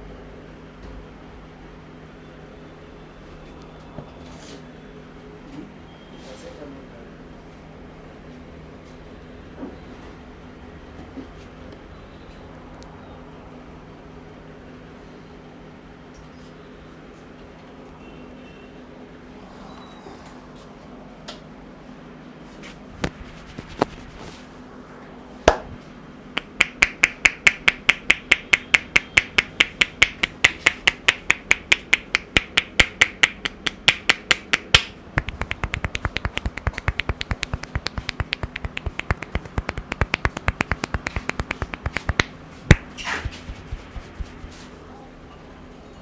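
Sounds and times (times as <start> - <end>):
soft pats on head: 22.5 - 24.5, 35.2 - 44.8
sharp snapping hair cracks: 32.8 - 44.1.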